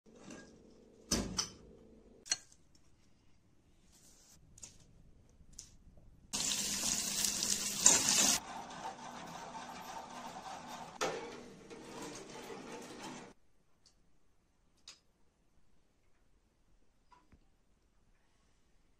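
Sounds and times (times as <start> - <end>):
running water: 6.4 - 8.4.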